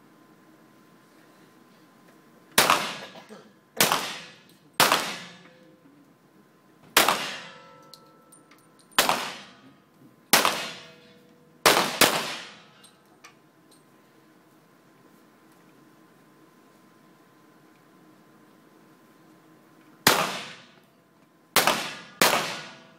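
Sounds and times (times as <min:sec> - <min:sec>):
pistol shots echoing indoors: 0:02.6 - 0:03.2, 0:03.8 - 0:05.5, 0:07.0 - 0:07.8, 0:08.9 - 0:09.7, 0:10.3 - 0:12.9, 0:20.0 - 0:20.8, 0:21.6 - 0:22.9.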